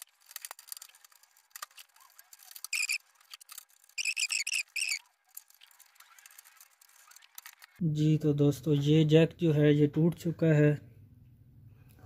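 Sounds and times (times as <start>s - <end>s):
high chirping squeaks: 2.6s - 3.1s, 3.8s - 7.4s.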